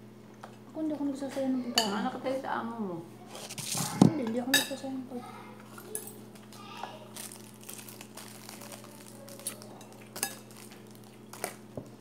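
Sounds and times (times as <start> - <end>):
plastic wrap being handled: 5.8 - 12.0
dishes and cutlery clattering: 9.8 - 10.8.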